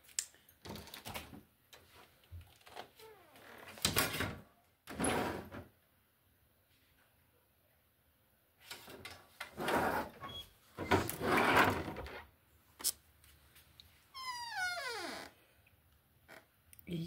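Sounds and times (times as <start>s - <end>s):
door creak sliding down: 2.6s - 5.7s, 9.4s - 12.2s, 14.2s - 15.4s.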